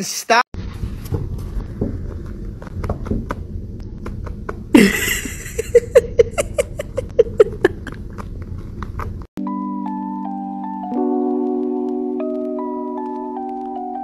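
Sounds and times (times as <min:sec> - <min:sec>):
steady rustle: 0:00.6 - 0:03.2
person laughing: 0:04.7 - 0:08.2.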